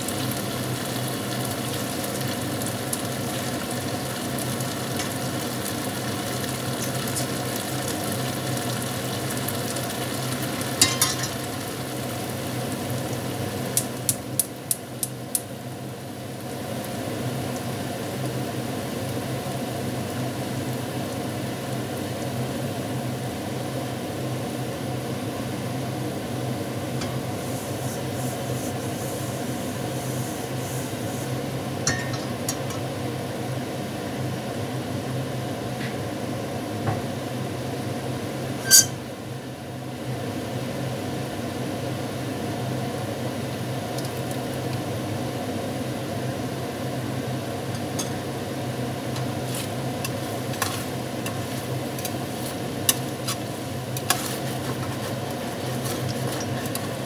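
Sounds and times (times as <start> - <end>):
chicken sizzling in a pan: 0.0 - 35.5, 37.5 - 57.0
spatula clinking against pan: 10.8 - 11.3
kitchenware clinking: 10.8 - 11.4, 31.9 - 32.9.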